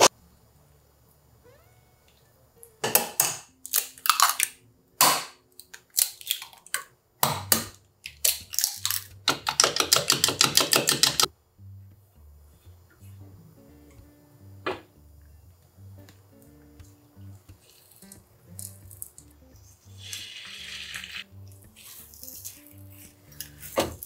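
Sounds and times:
eggs cracking: 0:02.9 - 0:11.3, 0:17.5 - 0:24.0.

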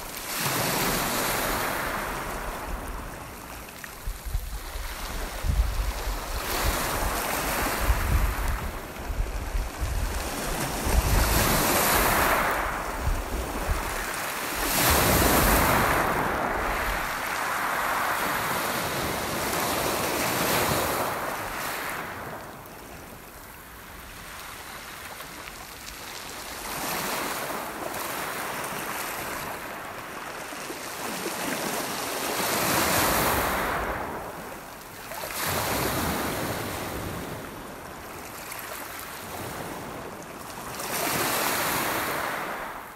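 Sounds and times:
wind buffeting microphone: 0:04.0 - 0:21.3
waves breaking on pebbles: 0:10.2 - 0:22.2.

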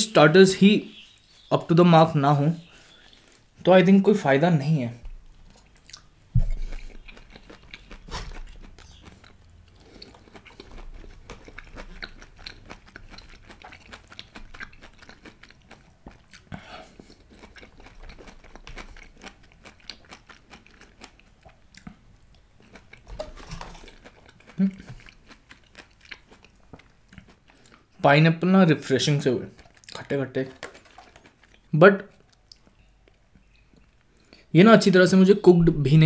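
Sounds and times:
person chewing food: 0:05.1 - 0:28.0, 0:29.3 - 0:34.5
wet mouth clicks and smacks: 0:05.6 - 0:09.4.

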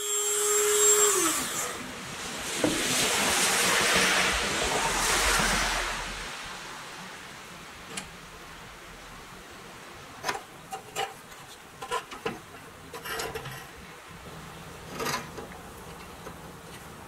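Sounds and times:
metal toy truck knocks and scrapes: 0:10.2 - 0:13.8, 0:14.8 - 0:16.3.

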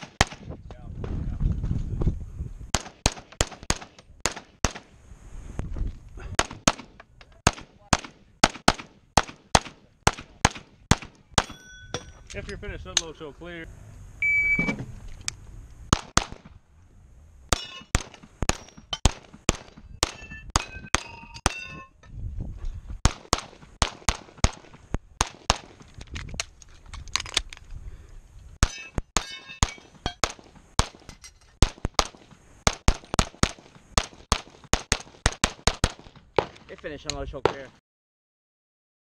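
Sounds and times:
rapid pistol fire: 0:00.0 - 0:00.5, 0:02.7 - 0:04.9, 0:06.4 - 0:11.5, 0:15.9 - 0:16.6, 0:23.0 - 0:25.8, 0:30.2 - 0:31.0, 0:31.6 - 0:36.7
metallic ring: 0:11.4 - 0:12.3, 0:20.1 - 0:22.1, 0:28.7 - 0:30.2.

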